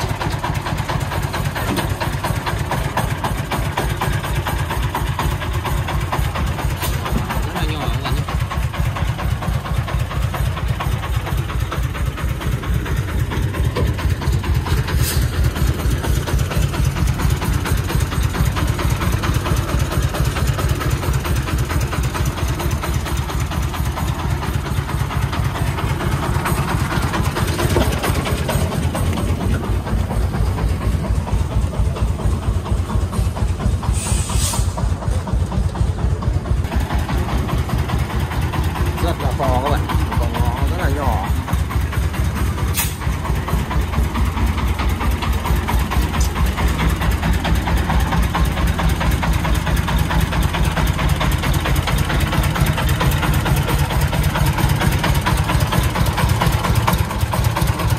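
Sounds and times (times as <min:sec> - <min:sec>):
diesel truck engine running: 0:00.0 - 0:57.9
short hiss: 0:33.9 - 0:34.8.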